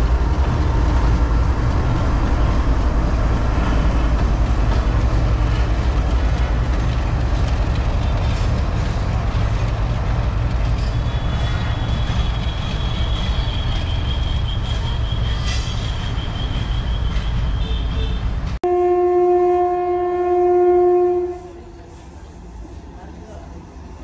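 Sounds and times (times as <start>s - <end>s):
freight train rumbling on rails: 0.0s - 24.0s
locomotive horn blast: 17.6s - 21.7s.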